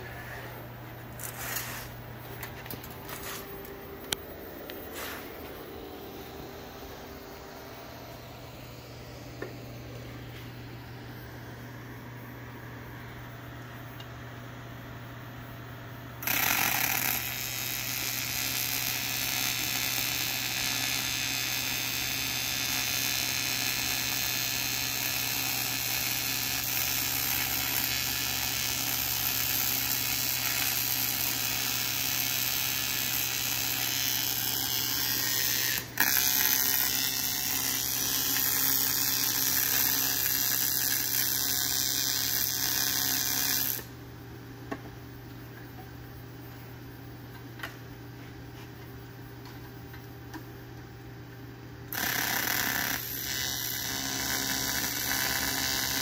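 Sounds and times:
welding arc hissing: 16.2s - 43.9s, 51.9s - 56.0s.

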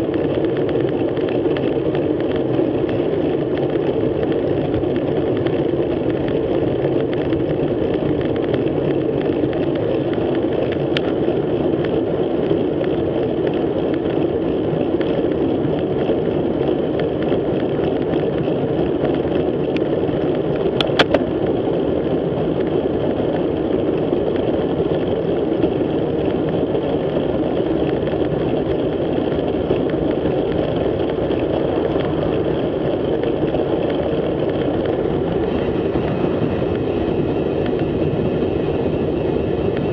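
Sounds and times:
road noise: 0.0s - 39.9s
sharp clicks: 20.8s - 21.2s.

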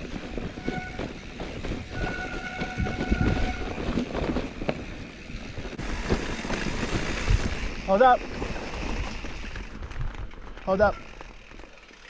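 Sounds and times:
bike brake squealing: 0.4s - 3.9s.

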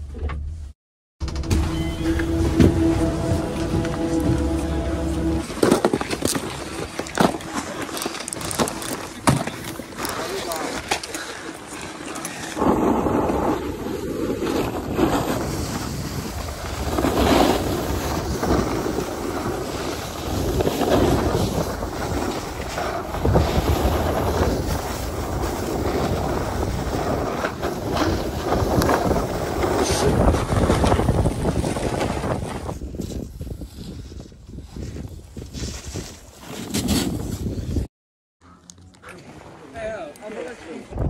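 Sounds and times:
wind rushing over microphone: 12.6s - 36.3s
snowboard edges scraping snow: 12.6s - 37.9s.

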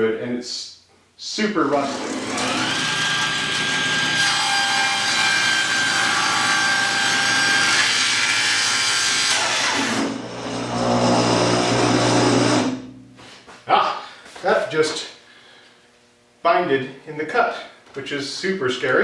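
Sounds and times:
table saw blade whine: 1.8s - 13.0s.

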